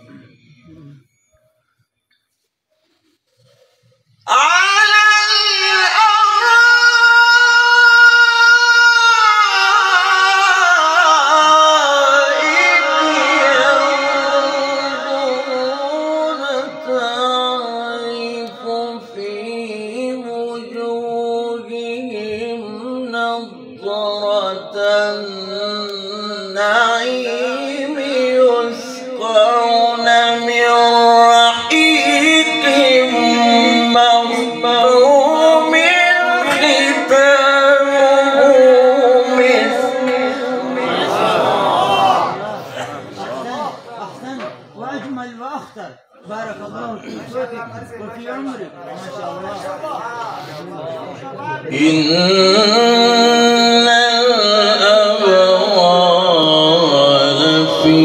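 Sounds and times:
man chanting melodically: 0:04.2 - 0:44.2, 0:48.1 - 0:58.0.

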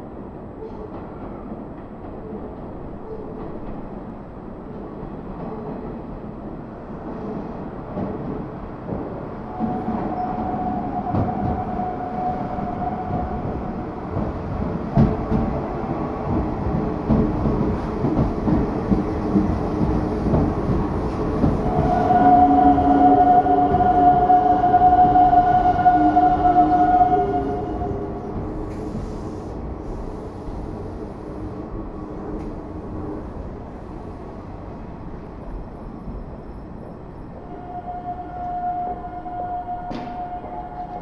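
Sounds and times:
electric train rolling: 0:08.8 - 0:41.0.

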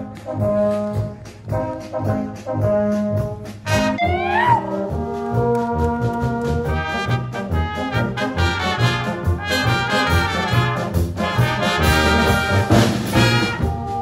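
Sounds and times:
brass band playing: 0:00.0 - 0:14.0
drum kit: 0:00.0 - 0:14.0
trumpets playing tune: 0:00.0 - 0:14.0
tuba bass notes: 0:00.0 - 0:14.0.

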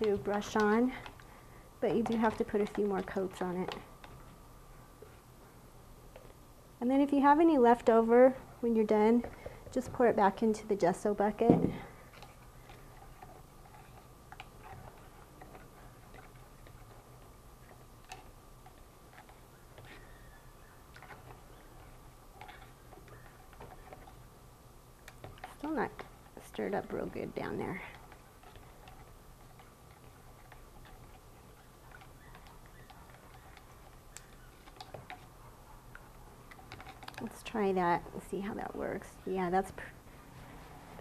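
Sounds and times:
stir stick scraping paint pail: 0:00.0 - 0:04.4, 0:08.8 - 0:24.3, 0:25.1 - 0:39.6.

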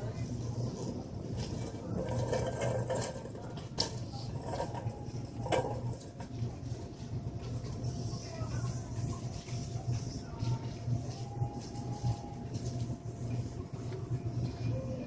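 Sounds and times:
shopping cart clanking: 0:00.0 - 0:06.6
shopping cart wheels rumbling on tiles: 0:00.0 - 0:15.0.

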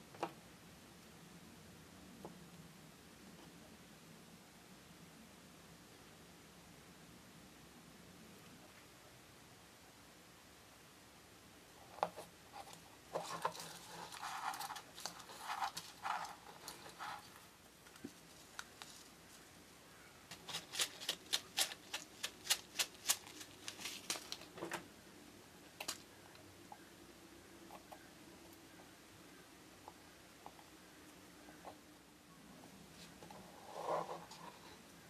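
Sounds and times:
plastic bag crinkling: 0:20.3 - 0:24.6.

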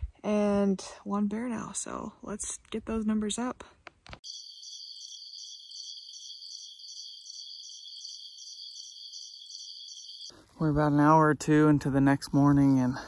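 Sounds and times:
crickets chirping: 0:04.2 - 0:10.3.

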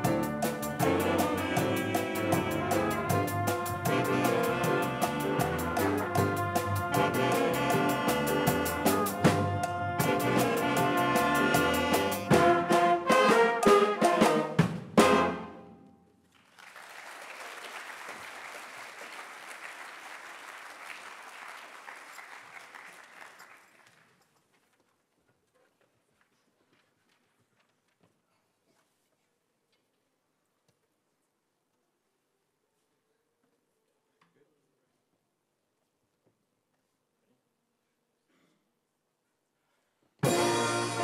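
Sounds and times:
jazz big band playing: 0:00.0 - 0:15.8, 0:40.2 - 0:41.0
audience applauding: 0:16.3 - 0:24.2.

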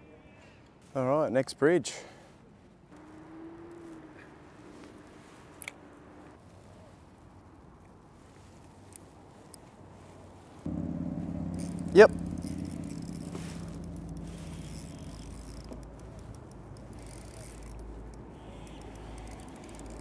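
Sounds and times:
low mechanical hum: 0:10.7 - 0:20.0
spinning reel ticking: 0:11.4 - 0:20.0.

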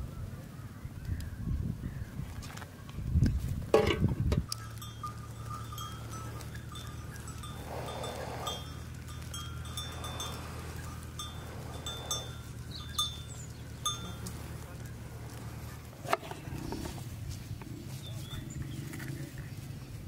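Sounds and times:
low steady hum: 0:03.1 - 0:20.0
livestock bells clinking: 0:04.4 - 0:15.7.

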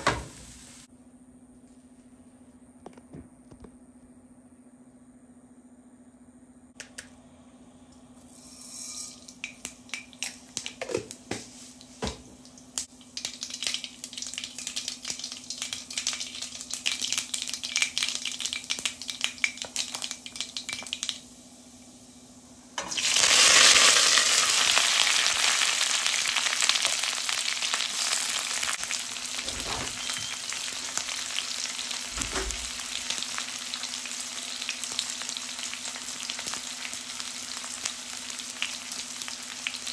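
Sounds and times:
food sizzling in oil: 0:08.3 - 0:10.8, 0:12.9 - 0:21.3, 0:22.8 - 0:39.9
hot oil crackling and popping: 0:08.4 - 0:21.4, 0:22.8 - 0:39.9.

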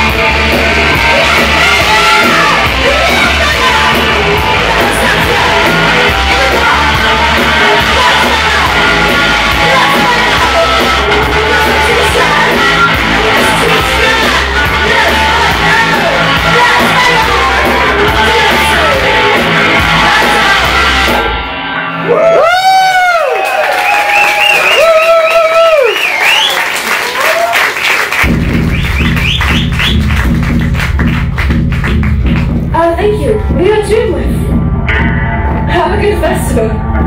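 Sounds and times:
live rock band playing: 0:00.0 - 0:22.8, 0:28.1 - 0:37.0
woman singing and yelling: 0:01.0 - 0:20.9.

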